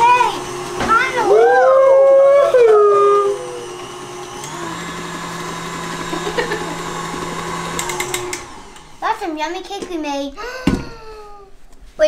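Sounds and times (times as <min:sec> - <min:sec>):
person shouting woo: 0:01.2 - 0:03.6.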